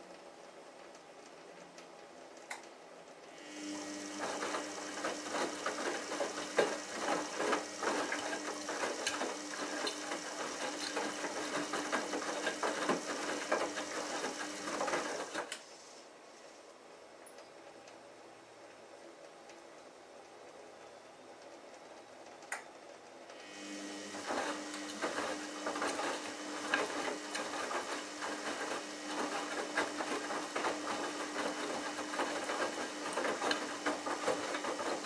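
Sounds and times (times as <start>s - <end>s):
washing machine motor humming: 3.2s - 16.2s, 23.2s - 35.0s.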